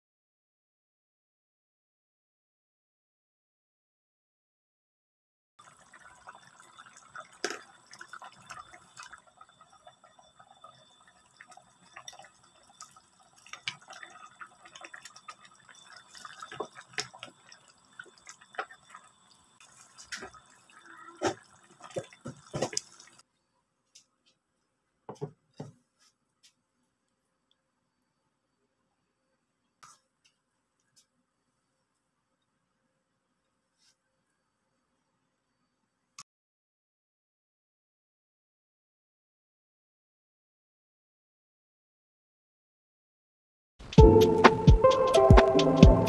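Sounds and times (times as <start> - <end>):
stew bubbling and popping: 5.6 - 23.2.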